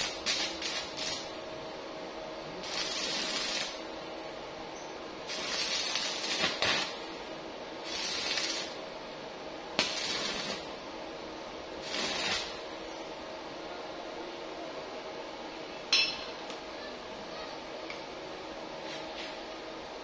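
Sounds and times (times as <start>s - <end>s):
arc welding crackling hiss: 0.0s - 1.5s, 2.6s - 3.9s, 5.2s - 8.9s, 9.7s - 10.8s, 11.8s - 12.9s
faint steady hum: 0.0s - 20.0s.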